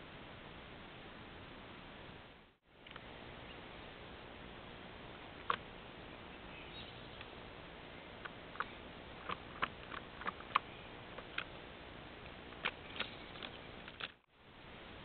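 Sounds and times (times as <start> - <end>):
steady microphone hiss: 0.0 - 15.0
squirrel claws scratching on wood: 8.2 - 11.6.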